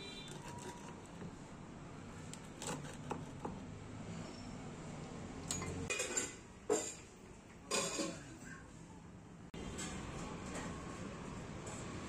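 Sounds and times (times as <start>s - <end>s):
pizza cutter scraping: 0.0s - 1.4s, 2.3s - 3.6s.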